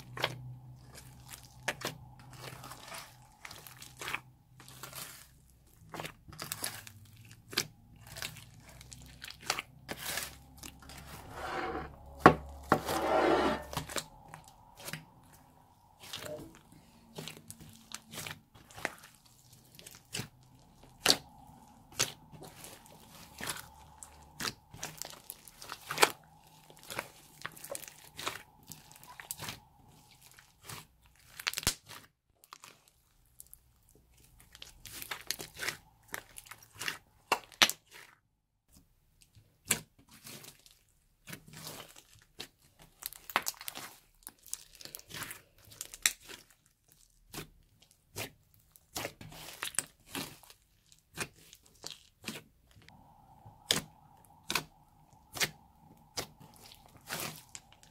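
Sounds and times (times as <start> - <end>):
sticky slime popping and crackling: 17.1 - 33.6, 34.2 - 38.1, 39.4 - 57.9.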